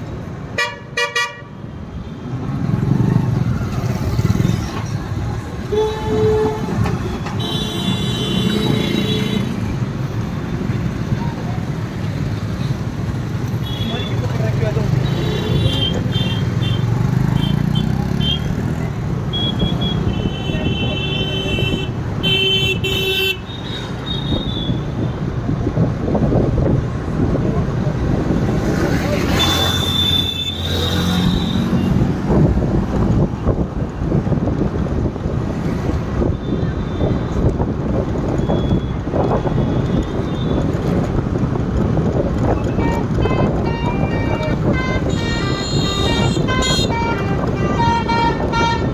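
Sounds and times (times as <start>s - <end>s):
rumble of traffic engines: 0.0s - 48.9s
vehicle horns honking: 0.6s - 1.6s, 5.6s - 9.6s, 19.2s - 24.9s, 29.3s - 32.0s, 42.6s - 48.9s
wind buffeting microphone: 24.8s - 28.7s, 31.8s - 48.9s
vehicle driving rumble: 30.8s - 48.9s.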